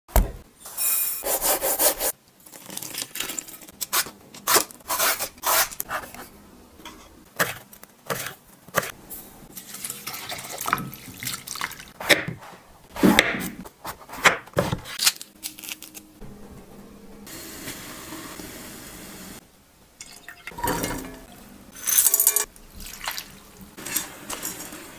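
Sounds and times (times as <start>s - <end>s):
rind rubbing and tearing: 14.8s - 16.2s.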